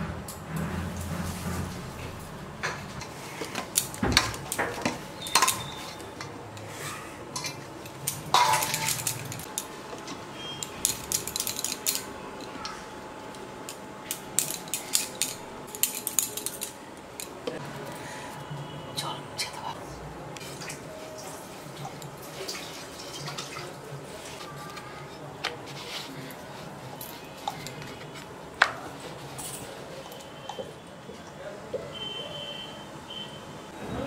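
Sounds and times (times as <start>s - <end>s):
metal utensils clattering: 2.6s - 9.7s, 10.6s - 12.1s, 13.7s - 17.4s.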